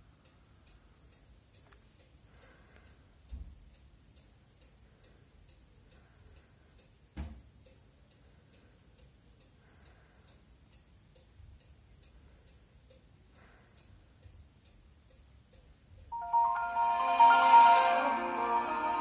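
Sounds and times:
faint regular ticking: 0.0s - 16.2s.

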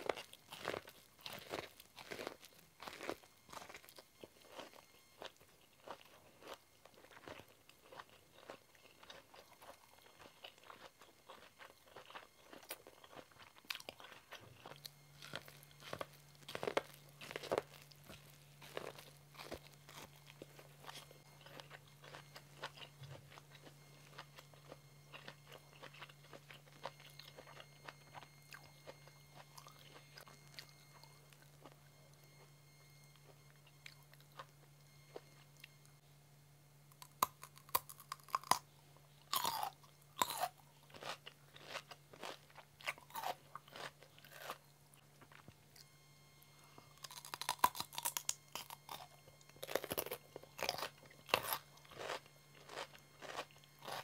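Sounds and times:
chewing with faint clicking: 0.0s - 18.3s
crunching bites into cucumber: 47.0s - 54.0s.

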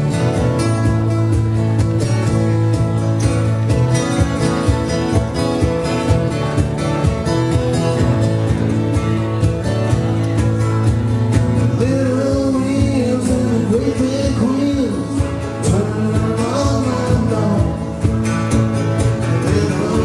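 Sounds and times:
acoustic guitars strummed: 0.0s - 20.0s
drum kit steady beat: 0.0s - 20.0s
man singing: 11.6s - 18.2s, 19.1s - 20.0s.

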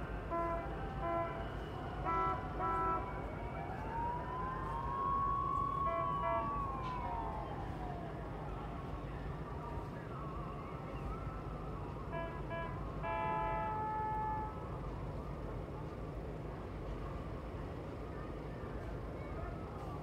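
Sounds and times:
siren wailing: 0.1s - 8.4s
boat horn toots: 2.0s - 3.0s, 12.2s - 14.6s.

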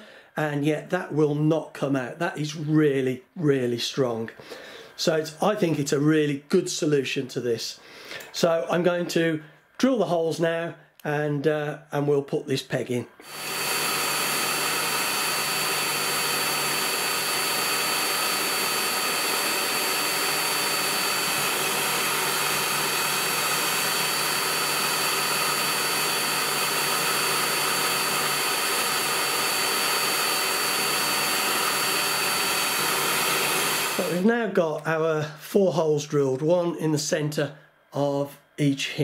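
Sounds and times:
electric drill running: 13.2s - 34.3s.

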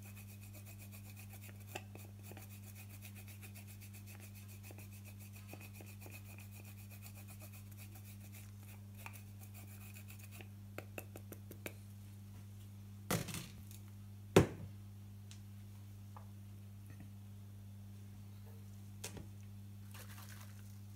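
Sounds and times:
grating on a metal grater: 0.0s - 10.5s.

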